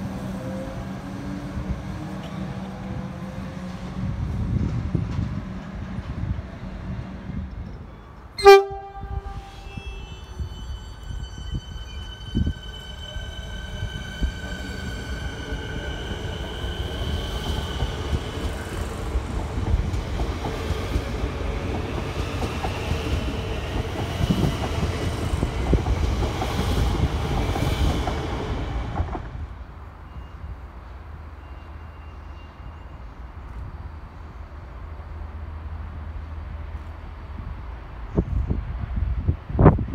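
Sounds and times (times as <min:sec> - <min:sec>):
train wheel rumble: 0:00.0 - 0:29.9.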